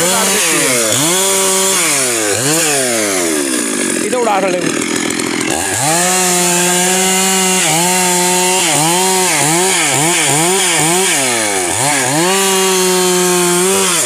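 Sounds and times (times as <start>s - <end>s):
chainsaw cutting through log: 0.0s - 14.0s.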